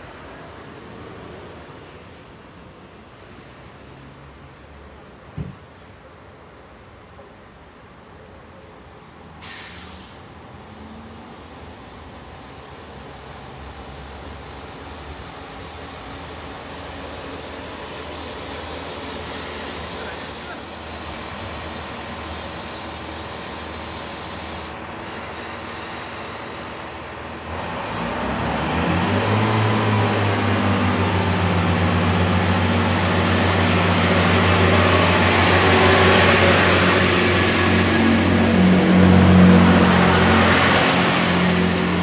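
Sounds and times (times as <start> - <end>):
diesel train engine running: 6.4 - 42.0
train wheels hissing: 9.4 - 28.1, 30.4 - 42.0.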